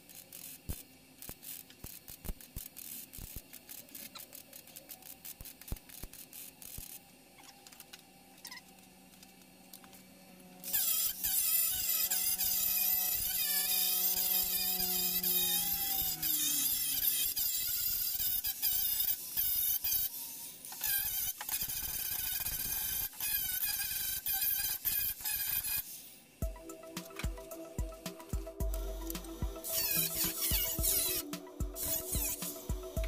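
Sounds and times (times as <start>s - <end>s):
welder crackle: 0.0s - 10.0s
angle grinder grinding steel: 10.6s - 25.9s, 26.5s - 33.0s.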